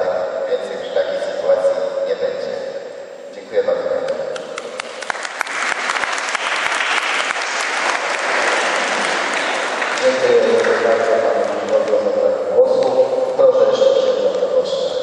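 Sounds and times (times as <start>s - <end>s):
man's voice: 0.0s - 2.7s, 10.0s - 15.0s
audience applauding: 4.4s - 11.8s.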